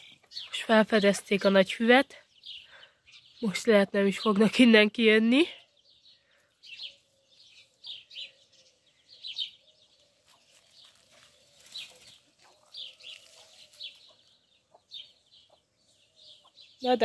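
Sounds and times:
chicks peeping: 6.5 - 16.8.

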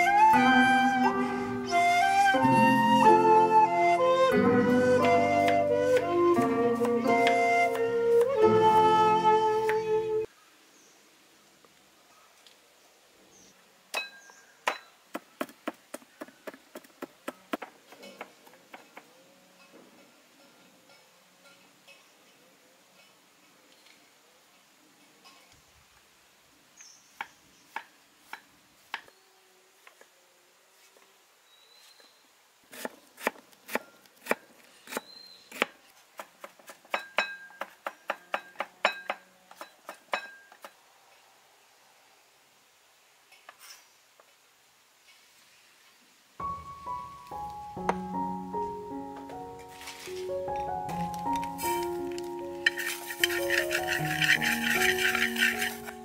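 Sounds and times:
sharp knocks with metallic ring: 37.0 - 39.2
knife slicing on wooden board: 52.7 - 56.0.

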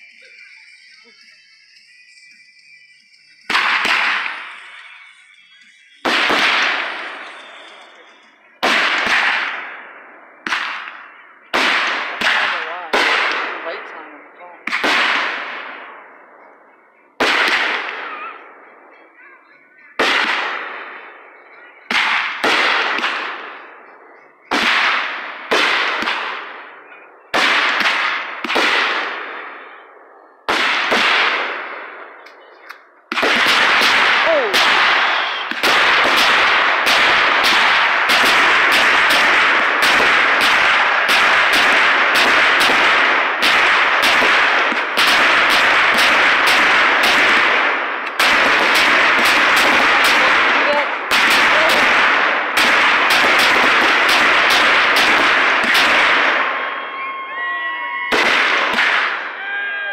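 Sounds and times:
firework bangs: 0.0 - 19.2, 19.8 - 57.1, 57.9 - 59.6
firework barrage of crackling: 0.0 - 59.9.

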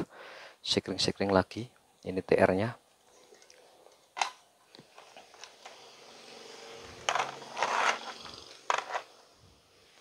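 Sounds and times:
short scrape: 5.8 - 9.2.

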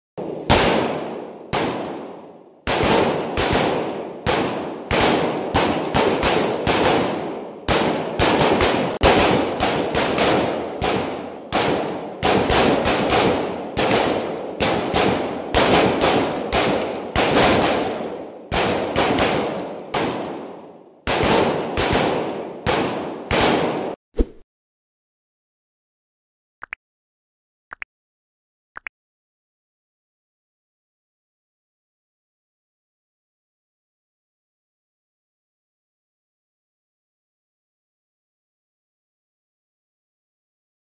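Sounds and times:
rifle shots echoing: 0.2 - 24.0.

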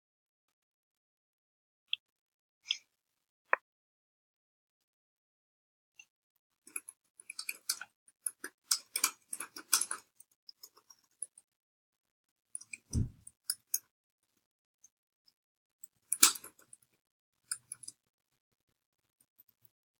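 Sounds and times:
small clicks and ticks: 6.7 - 11.5, 12.3 - 19.8
soft low thump: 12.9 - 13.2.

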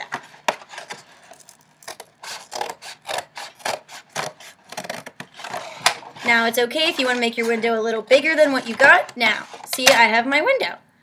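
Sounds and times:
scissors cutting cardboard: 0.1 - 7.6.

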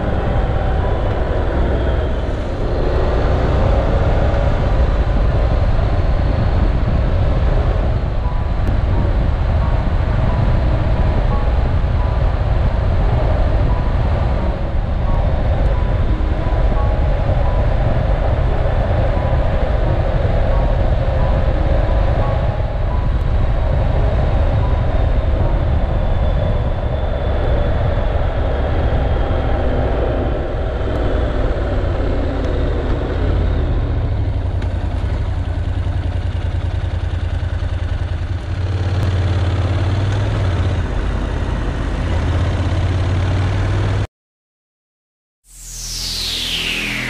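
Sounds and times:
synth music: 0.0 - 33.8, 45.5 - 47.0
motorcycle engine running: 31.0 - 44.0.

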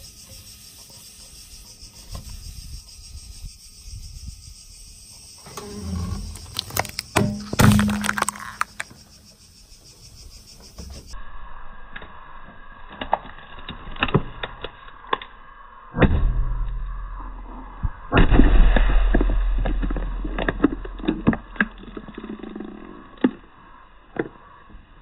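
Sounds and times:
grit crackling under tyre: 5.5 - 9.2, 19.1 - 25.0
can crunching: 5.6 - 8.9.

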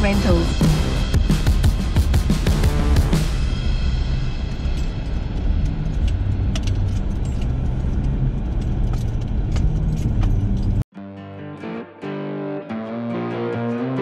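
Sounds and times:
truck road rumble: 3.8 - 10.8
rattles and clicks in cab: 4.6 - 10.8
electric guitar music: 10.9 - 14.0.

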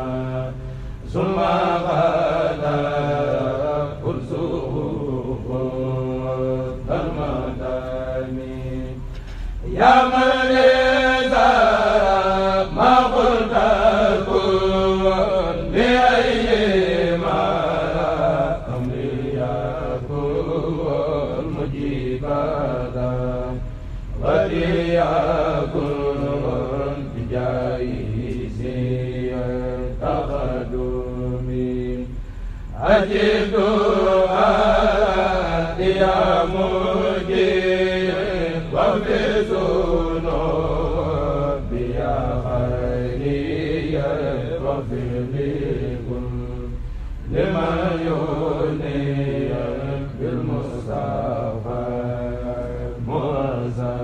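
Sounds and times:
group chanting: 0.0 - 54.0.

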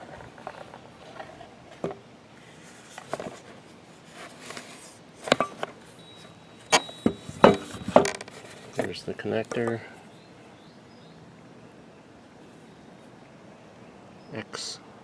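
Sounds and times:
charger handling knocks and rustles: 4.4 - 5.8, 6.7 - 9.8.

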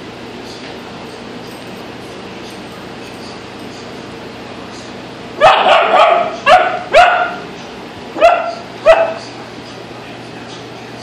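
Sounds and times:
puppy barking: 5.4 - 7.5, 8.2 - 9.3.

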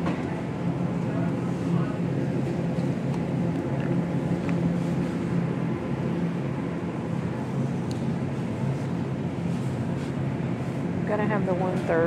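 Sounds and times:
low hum and rumble: 0.0 - 12.0.

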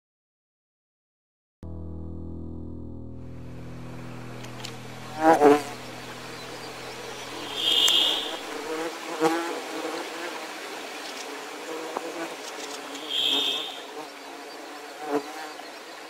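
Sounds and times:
short high trill: 1.6 - 8.8
flying insects buzzing: 4.5 - 16.0.

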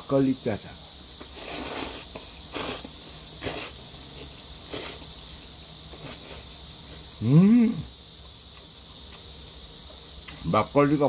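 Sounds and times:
person slurping noodles: 1.3 - 3.7, 4.7 - 5.0.

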